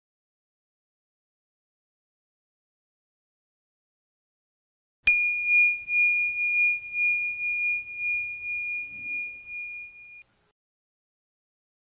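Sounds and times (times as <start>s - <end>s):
meditation bell ringing: 5.1s - 10.2s.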